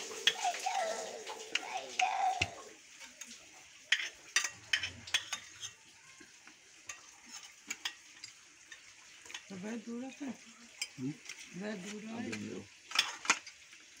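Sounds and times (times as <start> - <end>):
cutlery scraping plates: 3.0 - 5.8, 6.4 - 9.5, 10.7 - 13.6.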